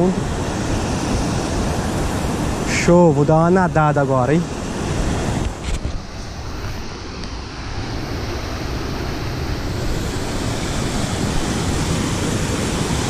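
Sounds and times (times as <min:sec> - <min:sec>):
river water over waterfall: 0:00.0 - 0:13.0.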